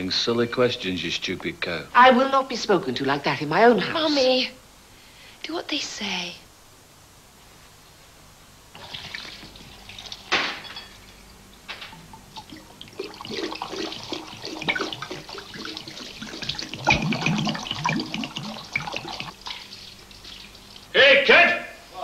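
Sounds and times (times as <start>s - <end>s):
liquid splashing into sink: 8.8s - 10.6s, 11.7s - 20.9s
glass bottles clinking: 9.2s - 19.7s.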